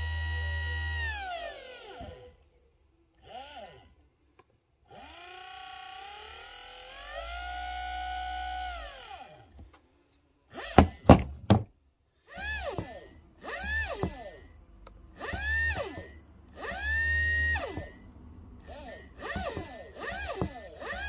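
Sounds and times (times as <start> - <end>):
electric motor whining: 0.0 - 2.6, 4.9 - 9.7, 12.3 - 21.0
loud sharp knocks: 10.8 - 11.7.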